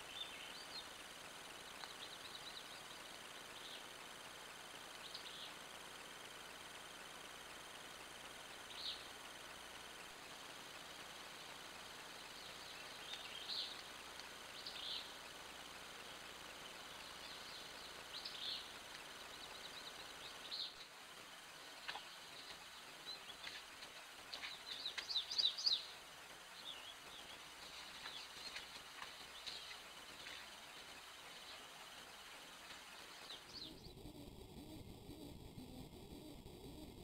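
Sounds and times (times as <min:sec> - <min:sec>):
bird chirps: 0:00.0 - 0:03.9, 0:05.0 - 0:05.6, 0:08.5 - 0:09.2, 0:10.0 - 0:34.2
steady hiss: 0:00.0 - 0:33.9.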